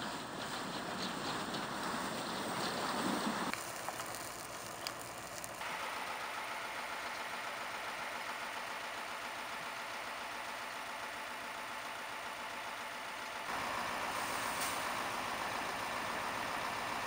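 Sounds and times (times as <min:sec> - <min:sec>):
wind noise: 0:00.0 - 0:03.6
fire crackling: 0:00.0 - 0:17.0
truck engines running: 0:00.0 - 0:17.0.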